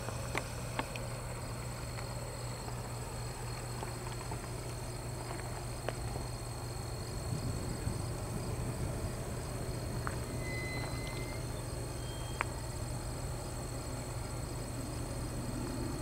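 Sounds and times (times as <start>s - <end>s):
insects trilling: 0.0s - 16.0s
low steady hum: 0.0s - 16.0s
short thin whistles: 10.4s - 11.4s, 12.0s - 12.4s.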